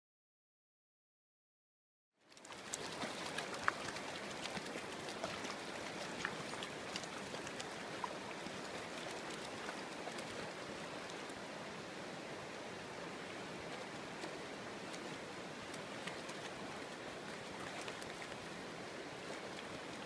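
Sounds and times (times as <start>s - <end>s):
dogs splashing in water: 2.3s - 11.3s
stream rushing over pebbles: 2.3s - 20.0s.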